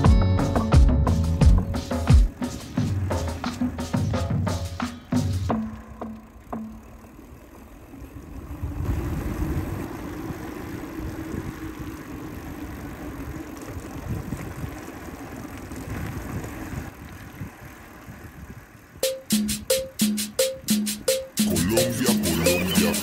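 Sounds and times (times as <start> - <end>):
steady low hum: 0.0 - 16.2
tyres rolling over rough pavement: 0.0 - 19.0
wind buffeting microphone: 8.1 - 19.0.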